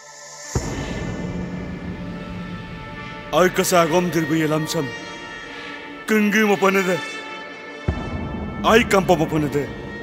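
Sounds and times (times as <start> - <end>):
deep boom: 0.6 - 3.6.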